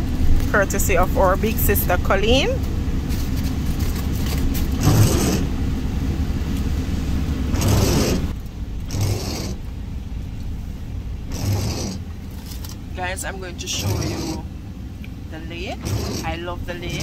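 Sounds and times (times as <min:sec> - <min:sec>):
vehicle engine rumble inside cabin: 0:00.0 - 0:17.0
food bag rustling: 0:03.0 - 0:04.8.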